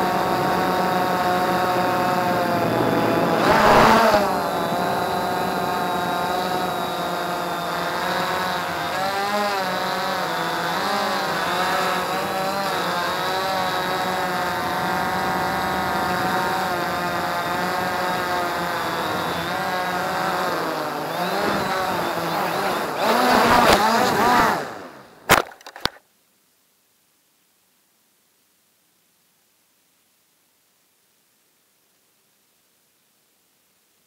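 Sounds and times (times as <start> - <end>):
drone motors whining: 0.0 - 26.0.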